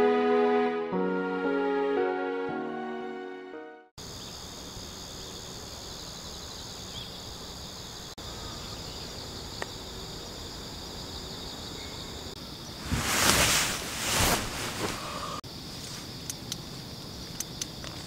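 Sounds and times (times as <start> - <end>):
crickets chirring: 4.0 - 18.0.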